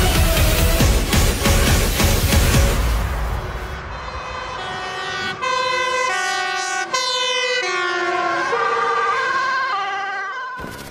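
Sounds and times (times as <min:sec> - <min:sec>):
two-tone sirens: 0:03.2 - 0:10.9
warbling siren: 0:03.4 - 0:10.9.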